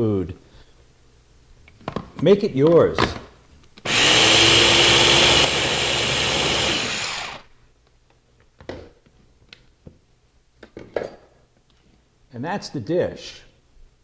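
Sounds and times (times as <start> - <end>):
electric food chopper whirring: 3.9 - 7.5.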